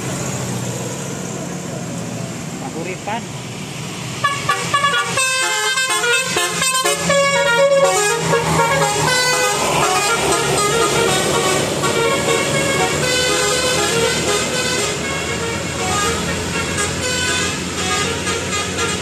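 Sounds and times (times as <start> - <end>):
bus engine hum: 0.0 - 19.0
musical bus horn melody: 4.2 - 19.0.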